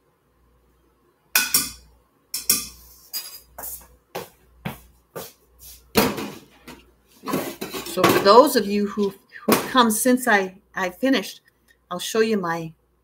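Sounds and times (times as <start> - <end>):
dishes clinking and knocking: 1.4 - 3.6, 6.0 - 8.4.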